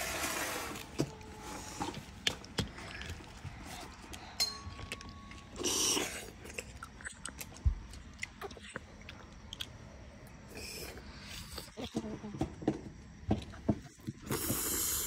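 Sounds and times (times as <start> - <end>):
chewing: 2.2 - 12.1.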